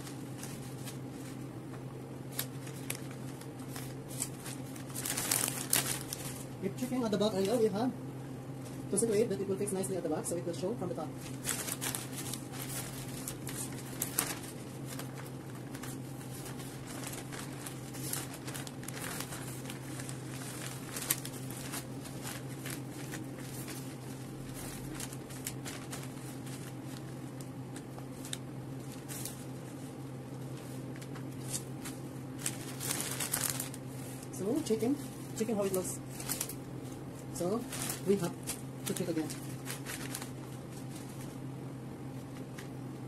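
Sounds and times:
wrapping paper rustling and crinkling: 0.0 - 7.8, 10.8 - 41.5, 42.1 - 43.0
low hum: 10.4 - 43.0.

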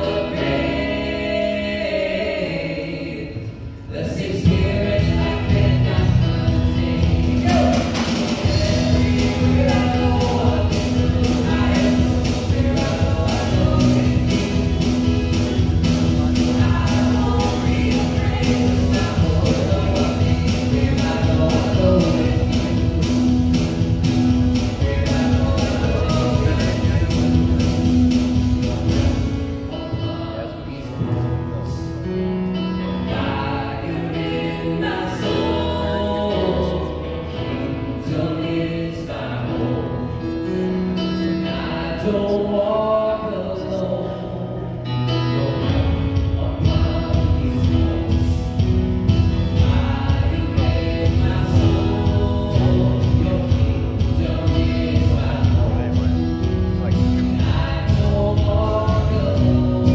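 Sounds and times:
singing voices with accompaniment: 0.0 - 59.9
heavy bass: 3.3 - 32.2, 43.6 - 59.9.

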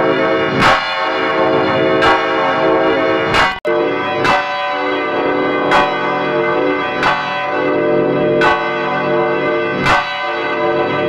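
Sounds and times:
church bell ringing: 0.0 - 11.0.

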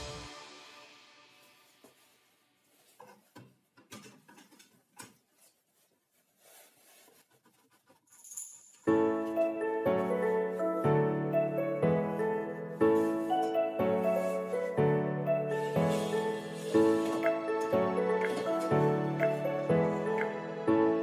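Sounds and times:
piano music: 0.0 - 2.1, 8.9 - 21.0.

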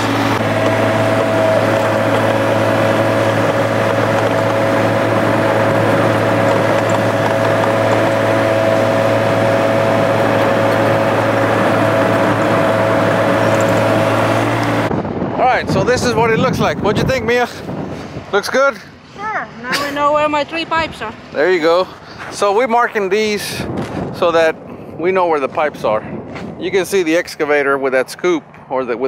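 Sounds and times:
excavator engine running: 0.0 - 15.0
high whine: 0.0 - 17.3.

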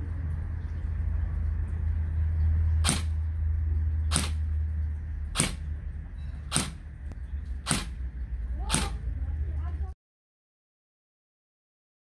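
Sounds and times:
gel blaster shots clicking: 4.1 - 4.4, 5.4 - 5.6, 6.5 - 6.8, 7.6 - 8.0.

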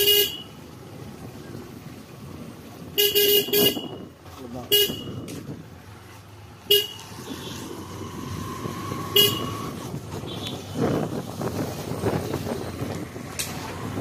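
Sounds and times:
vehicle horn toots: 0.0 - 0.5, 3.0 - 4.1, 4.7 - 5.3, 6.7 - 7.7, 9.0 - 10.8
street noise: 0.0 - 14.0.

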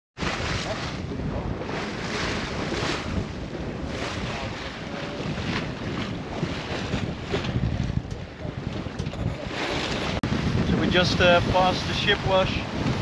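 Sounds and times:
water splashing along hull: 0.2 - 13.0
wind buffeting microphone: 0.2 - 13.0.

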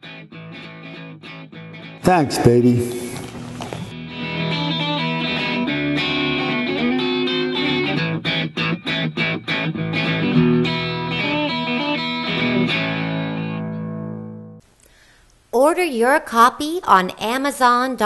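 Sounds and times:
guitar playing chords: 0.0 - 2.9, 3.9 - 14.6.

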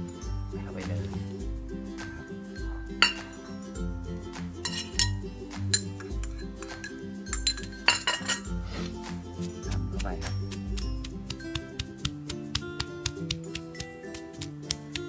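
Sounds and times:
background music: 0.0 - 15.0
ceramic bowl clinking on stone mortar: 3.0 - 3.5, 4.6 - 8.5.

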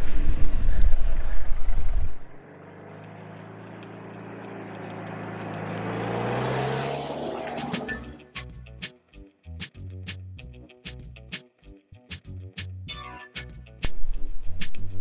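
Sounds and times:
vehicle engine approaching on dirt: 0.0 - 8.2.

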